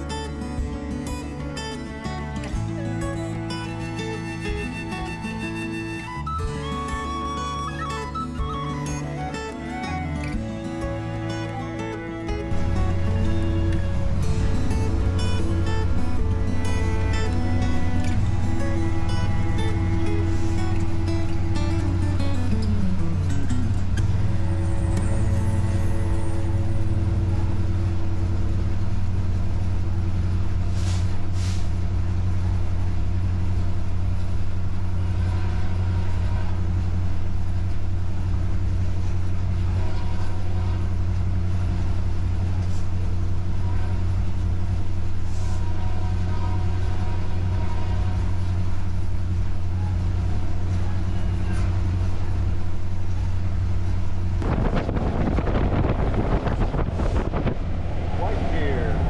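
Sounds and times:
locomotive engine drone: 0.0s - 59.0s
wind rush and running noise: 54.3s - 59.0s.

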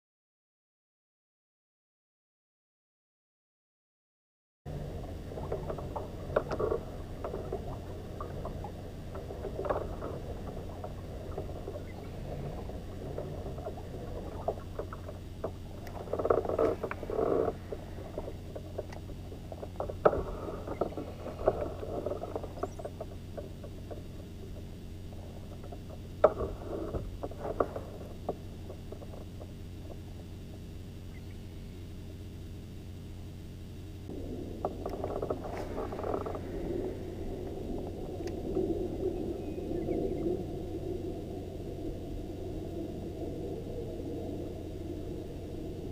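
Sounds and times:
steady low hum: 4.7s - 45.9s.

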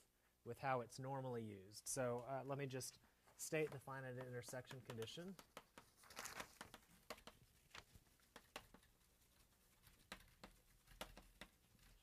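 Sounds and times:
chalk tapping and scratching on blackboard: 3.4s - 12.0s.

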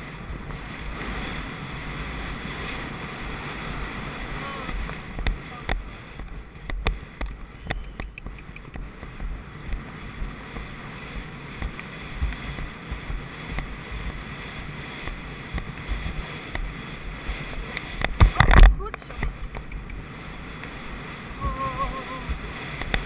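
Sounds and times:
dull thuds of hooves: 0.0s - 21.6s, 22.2s - 23.0s
wind buffeting microphone: 0.0s - 23.0s
sharp clicks: 5.2s - 9.8s, 17.7s - 20.0s.

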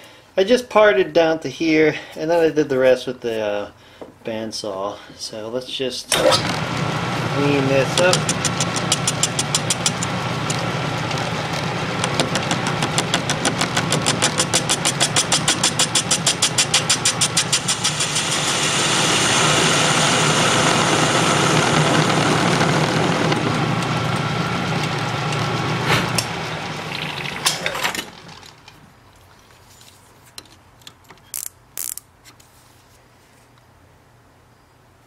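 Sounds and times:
lathe hum: 6.2s - 28.4s
lathe tool clicking on workpiece: 7.8s - 26.8s
steady hiss of cutting: 15.4s - 22.6s.

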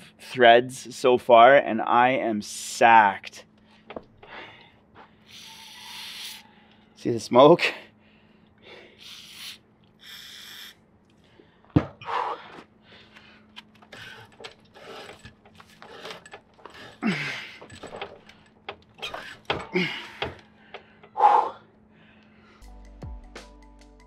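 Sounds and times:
pipe threader clicking and scraping: 13.1s - 21.2s.

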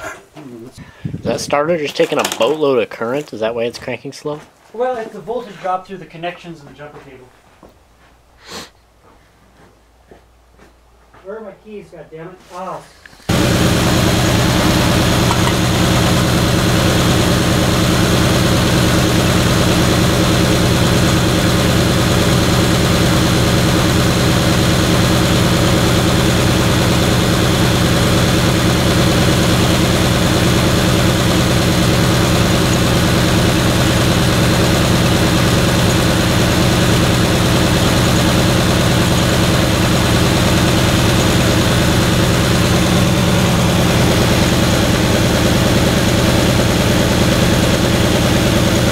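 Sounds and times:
engine idling: 13.0s - 48.9s.

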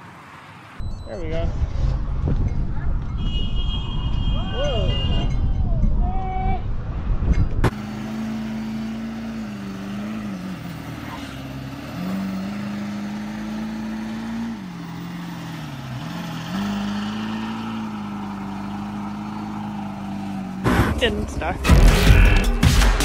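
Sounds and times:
tires spinning in snow: 7.7s - 21.0s
truck engine revving under load: 7.7s - 21.0s.

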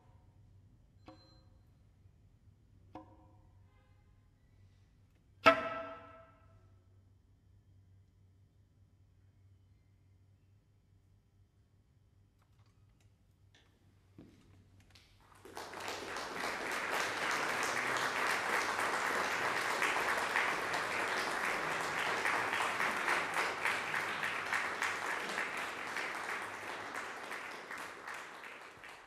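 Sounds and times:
audience applauding: 15.2s - 29.0s.

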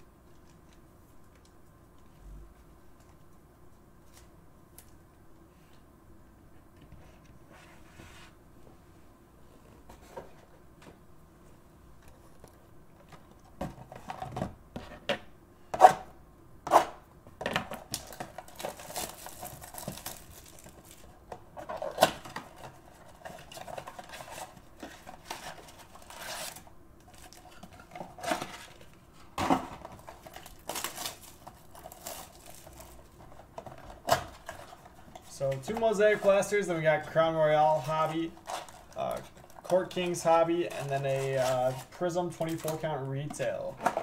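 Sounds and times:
cardboard and plastic rustling: 12.2s - 15.1s, 17.4s - 44.0s.

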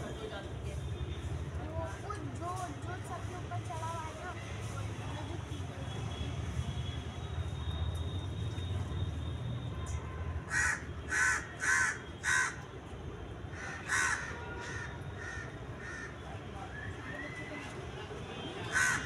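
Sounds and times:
bird cawing: 10.5s - 12.6s, 13.5s - 16.2s, 18.7s - 19.0s.

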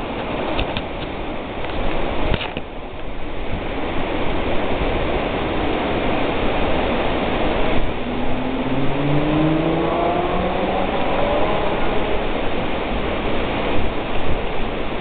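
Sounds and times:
steady rushing noise: 0.0s - 15.0s
vehicle engine accelerating: 6.6s - 13.8s.

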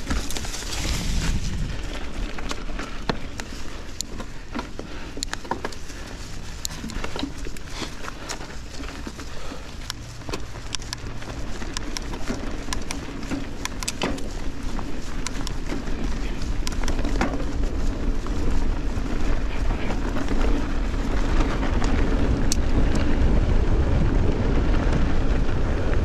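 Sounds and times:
chain and frame rattling: 0.0s - 18.7s
bike tyres rolling over dirt: 0.0s - 26.0s
low steady rumble: 0.0s - 26.0s.

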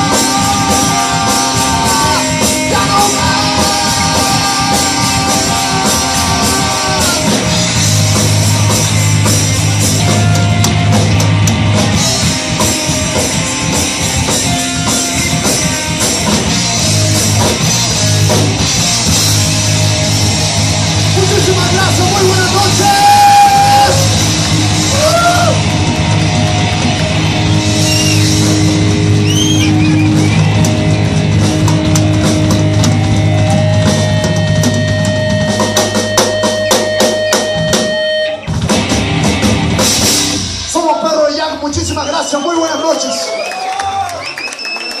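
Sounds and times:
person singing: 0.0s - 7.8s
electric guitars: 0.0s - 40.7s
bass guitar: 0.0s - 42.1s
drum kit: 0.0s - 42.8s.

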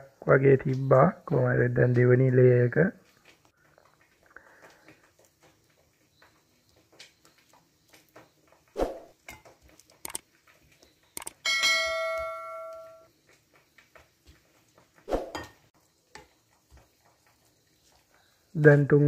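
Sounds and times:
clicks: 9.9s - 10.2s, 11.2s - 11.4s
bell-like chime: 11.4s - 13.1s.

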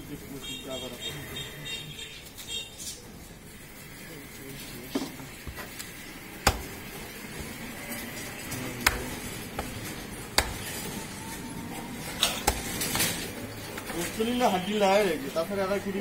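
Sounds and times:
cleaver chopping on wooden block: 6.4s - 6.8s, 8.8s - 10.8s, 12.4s - 12.8s.

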